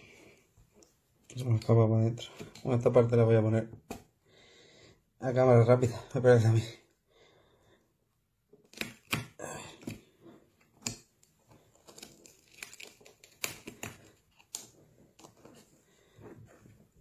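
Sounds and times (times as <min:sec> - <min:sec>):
cloth rustling and scraping: 0:14.0 - 0:17.0.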